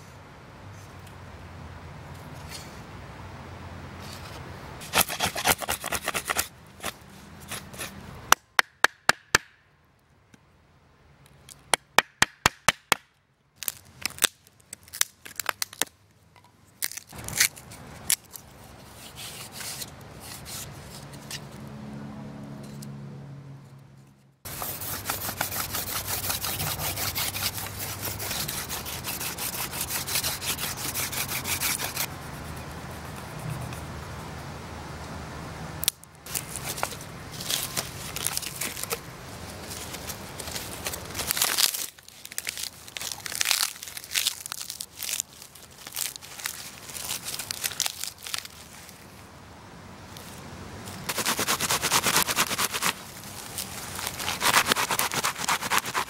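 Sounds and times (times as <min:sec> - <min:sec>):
stone scraper rasping on wood: 0:04.8 - 0:08.0, 0:24.5 - 0:32.1, 0:51.1 - 0:53.0, 0:54.1 - 0:56.0.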